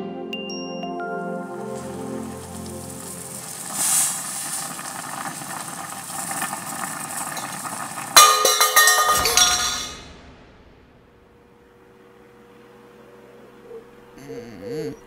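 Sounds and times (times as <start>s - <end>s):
pan sizzling: 1.4s - 10.1s
metal bowl and pan clattering: 7.3s - 10.0s.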